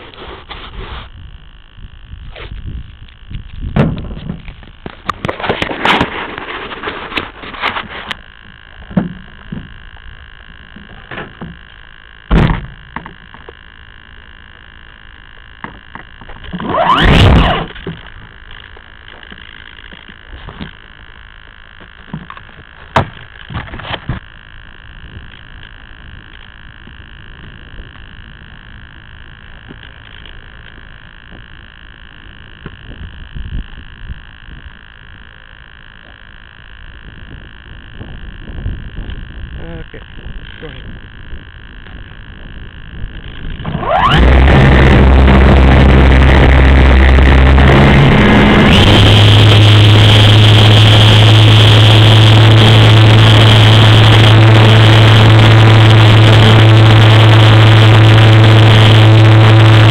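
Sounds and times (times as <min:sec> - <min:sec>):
high electronic whine: 0:00.0 - 0:59.9
long scraping rumble: 0:36.5 - 0:59.9.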